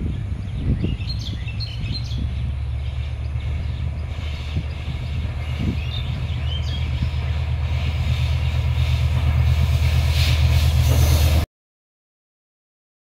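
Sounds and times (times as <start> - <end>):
birds chirping: 0.0 - 9.4
locomotive engine drone: 0.0 - 11.5.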